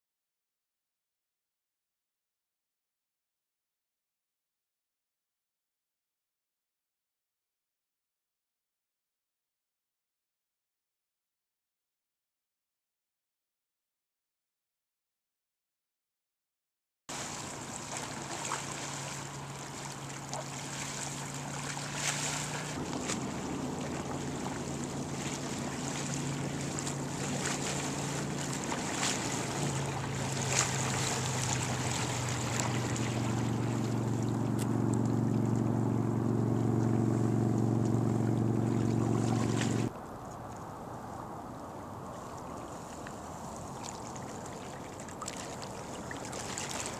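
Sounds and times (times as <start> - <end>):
engine humming: 17.1 - 39.9
water splashing: 17.1 - 40.7, 41.8 - 46.9.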